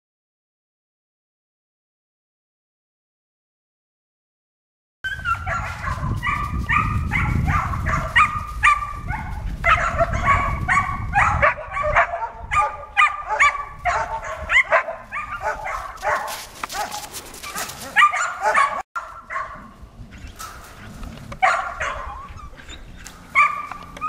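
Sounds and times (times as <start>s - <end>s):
puppy barking and yipping: 5.1s - 19.8s, 20.4s - 24.0s.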